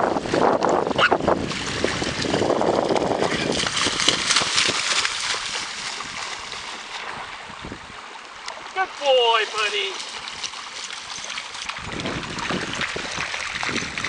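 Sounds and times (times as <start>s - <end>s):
dog splashing through surf: 0.0s - 7.5s, 8.6s - 14.0s
wind rushing over microphone: 0.0s - 8.0s, 11.7s - 14.0s.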